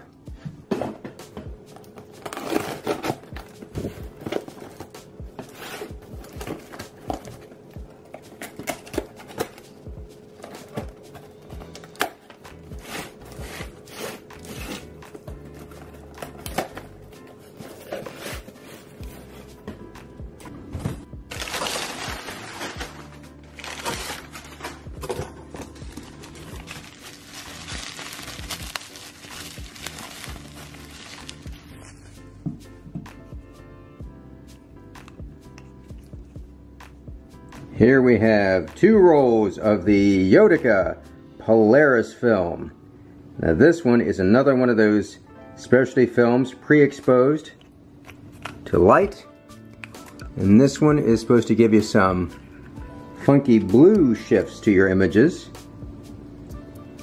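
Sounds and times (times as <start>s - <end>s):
bubble wrap and paper crinkling: 2.0s - 9.8s, 10.4s - 19.6s, 20.8s - 32.2s.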